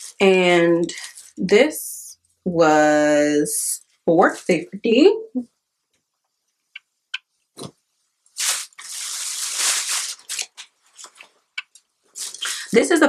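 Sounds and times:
fabric rustling: 0:08.3 - 0:11.5.

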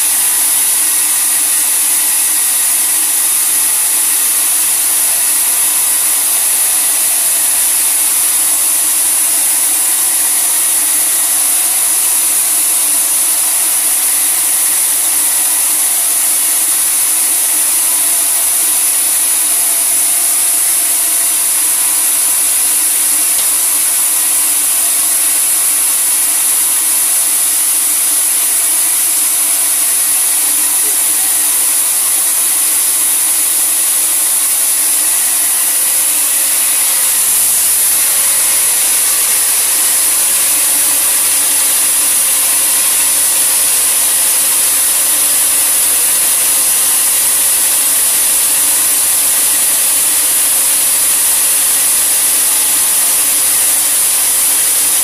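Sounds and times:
saw running with high hiss: 0:00.0 - 0:55.0.

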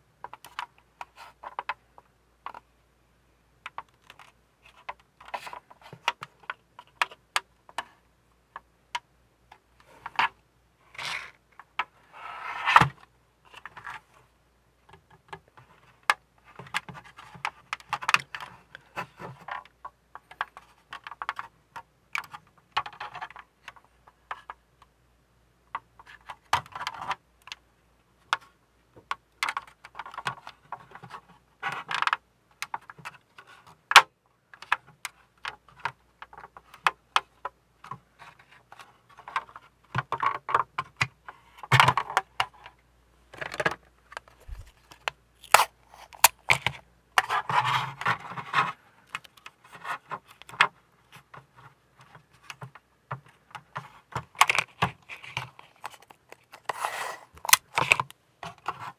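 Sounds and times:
plastic parts scraping: 0:43.3 - 0:50.6, 0:53.6 - 0:58.9
plastic parts clicking: 0:54.2 - 0:58.2.

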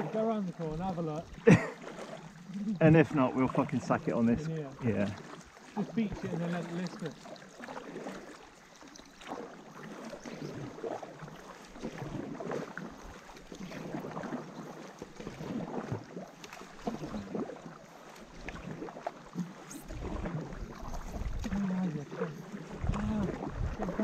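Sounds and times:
paddles splashing in water: 0:00.0 - 0:24.0
water dripping: 0:19.4 - 0:24.0
wind rumble on microphone: 0:22.7 - 0:24.0.

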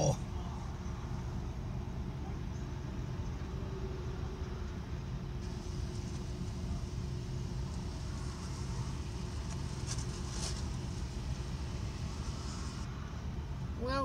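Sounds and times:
car engine idling: 0:05.4 - 0:12.9.

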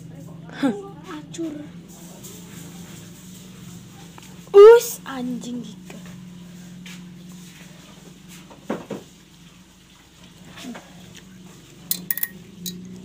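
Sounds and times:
metal forks clinking on plate: 0:11.9 - 0:12.9.

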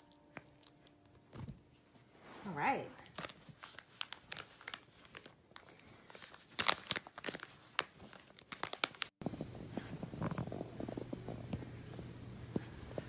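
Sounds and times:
puppy chewing and crinkling plastic: 0:00.1 - 0:01.4, 0:03.0 - 0:13.0
low steady hum: 0:09.2 - 0:13.0.

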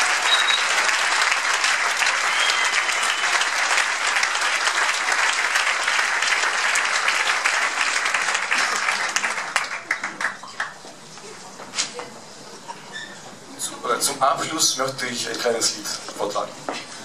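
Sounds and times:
audience applauding: 0:00.0 - 0:10.9.

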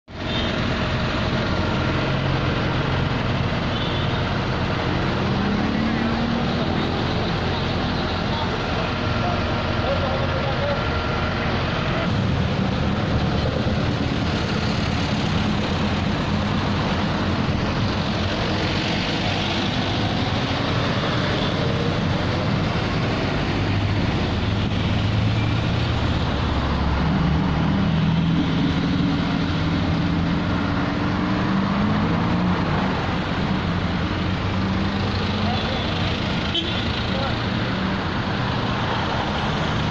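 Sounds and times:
vehicle engines running: 0:00.1 - 0:39.9.

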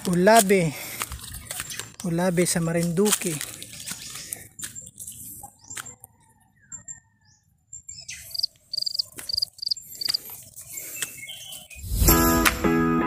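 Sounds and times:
footsteps rustling: 0:00.0 - 0:06.0, 0:08.3 - 0:11.7
small creature chirping: 0:08.3 - 0:10.2.

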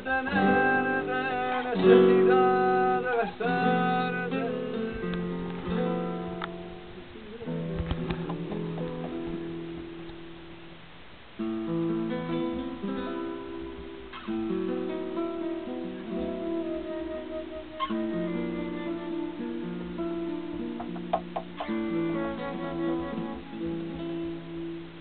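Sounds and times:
acoustic guitar: 0:00.0 - 0:25.0
flute long notes: 0:16.1 - 0:20.3, 0:21.6 - 0:24.5.

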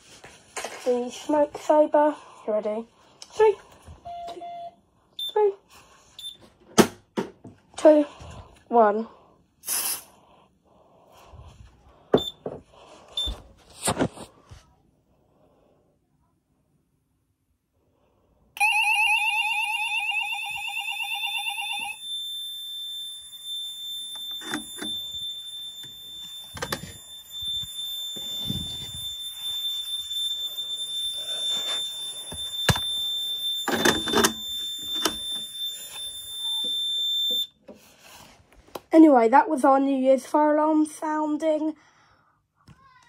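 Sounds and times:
warbling fire alarm tone: 0:03.8 - 0:05.5, 0:18.6 - 0:37.9
steady high-pitched tone: 0:18.6 - 0:37.5.

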